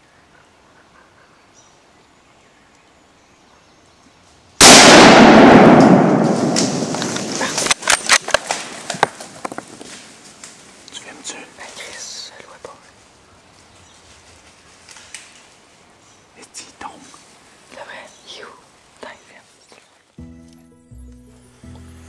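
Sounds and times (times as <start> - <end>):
gunshot: 4.6 - 8.7.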